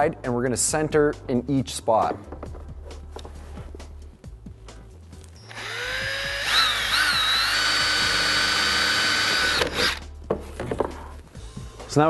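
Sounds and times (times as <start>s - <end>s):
cordless drill whine: 5.4s - 10.0s.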